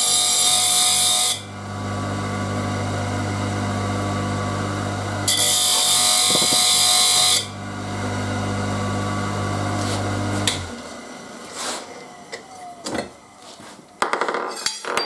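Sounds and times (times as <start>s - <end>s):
motor humming: 1.4s - 12.8s
grinding wheel hiss: 3.1s - 7.6s.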